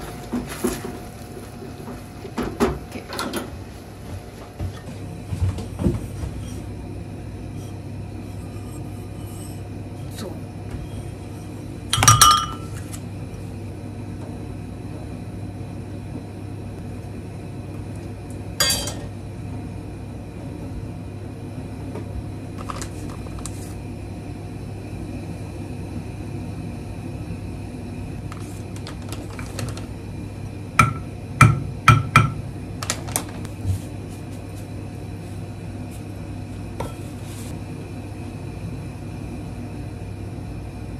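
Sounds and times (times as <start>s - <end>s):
steady low hum: 0.0s - 40.9s
ceramic bowls clinking: 12.0s - 12.8s.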